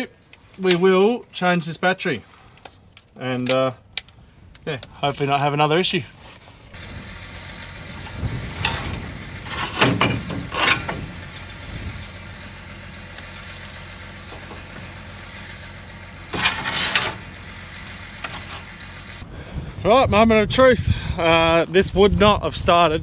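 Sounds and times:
engine-like drone: 6.6 - 19.9.

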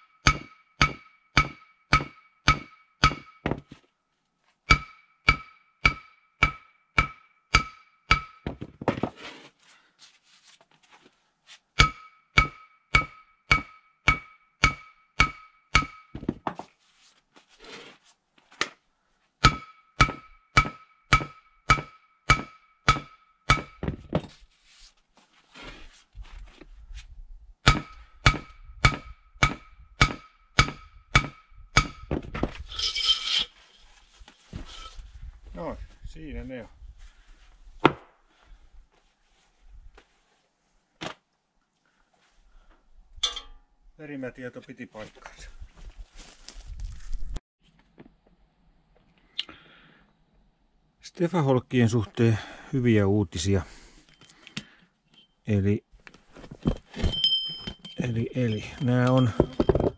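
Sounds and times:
hammer striking metal: 0.0 - 3.6, 4.7 - 8.6, 11.8 - 16.3, 19.4 - 23.8, 27.7 - 32.2, 43.2 - 43.6
metal scraping: 32.6 - 35.0.

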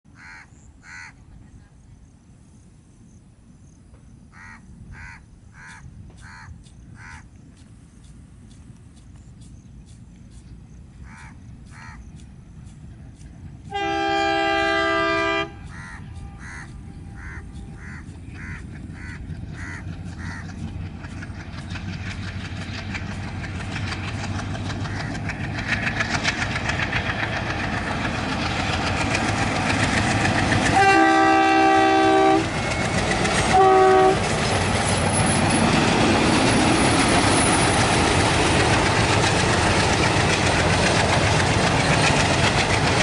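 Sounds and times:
crows cawing: 0.2 - 1.2, 4.3 - 7.3, 11.0 - 12.1, 15.7 - 20.7, 24.8 - 25.3
diesel engine rumble: 5.8 - 43.0
locomotive horn: 13.6 - 17.6, 30.6 - 32.6, 33.4 - 34.4.

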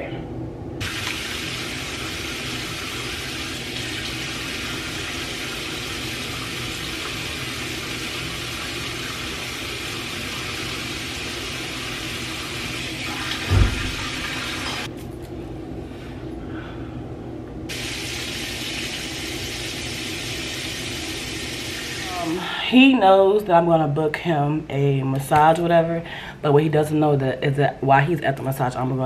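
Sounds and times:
water running: 0.8 - 14.9, 17.7 - 22.5
dull thump: 13.4 - 14.2.

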